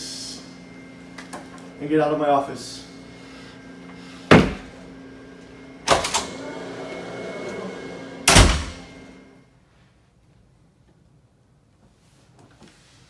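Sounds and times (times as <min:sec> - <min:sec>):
door banging: 0:08.2 - 0:08.9.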